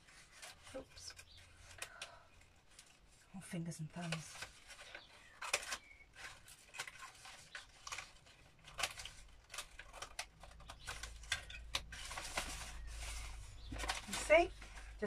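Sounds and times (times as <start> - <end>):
paper rustling: 0.0 - 15.0
scissors snipping paper: 4.0 - 12.9.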